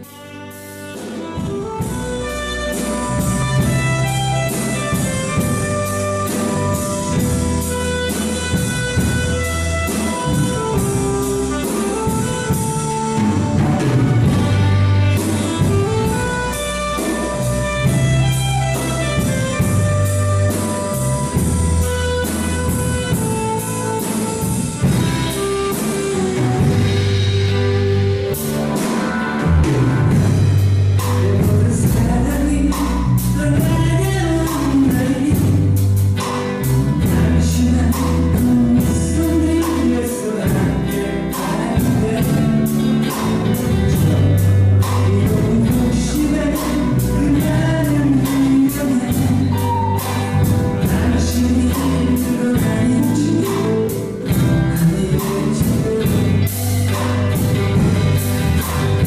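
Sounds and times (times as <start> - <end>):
saxophone melody: 0.0 - 31.3, 49.0 - 51.0
live band playing: 0.0 - 59.0.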